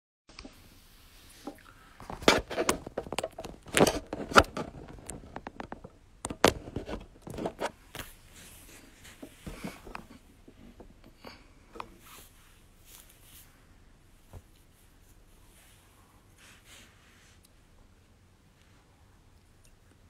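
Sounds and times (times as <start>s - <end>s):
smartphone handling noise: 2.0s - 8.3s.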